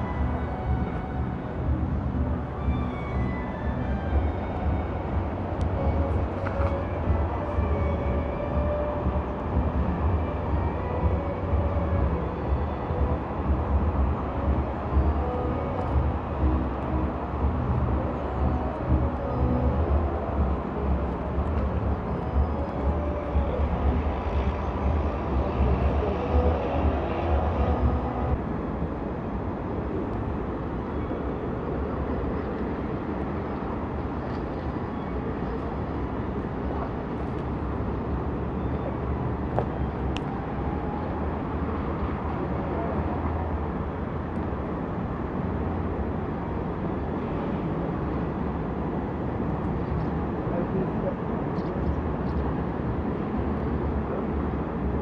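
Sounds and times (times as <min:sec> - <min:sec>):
distant city traffic: 0:00.0 - 0:55.0.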